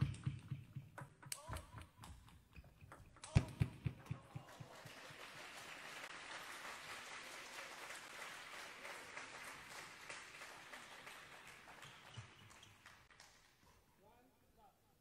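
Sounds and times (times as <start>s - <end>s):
small audience applauding: 4.1s - 13.6s.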